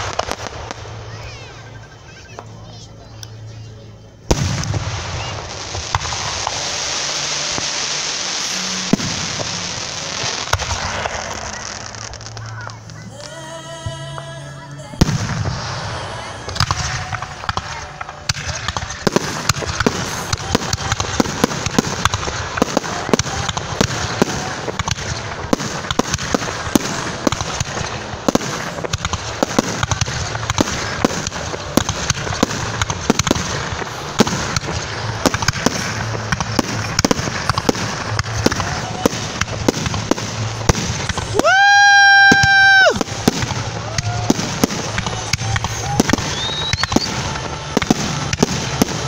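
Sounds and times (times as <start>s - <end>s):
fireworks bursting: 0.0s - 49.0s.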